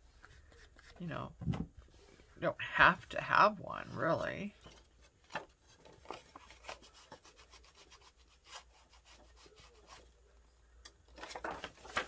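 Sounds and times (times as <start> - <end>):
paper rubbing and scratching: 5.7 - 10.2.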